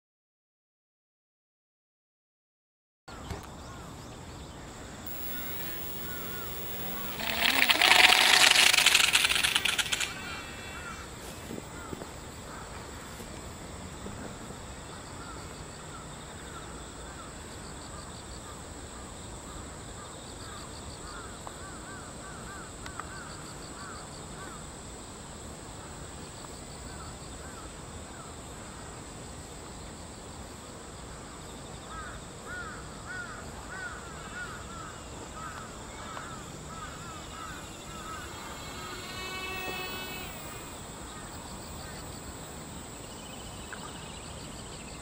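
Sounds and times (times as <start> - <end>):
high insect drone: 3.6 - 45.0
crows cawing: 5.2 - 12.7, 31.9 - 40.6.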